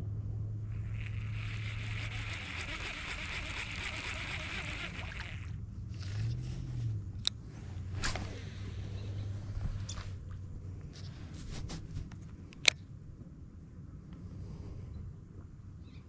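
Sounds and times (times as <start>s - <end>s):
small boat motor running: 0.0s - 9.4s
water hissing: 0.7s - 5.6s
sharp clicks: 12.5s - 12.8s.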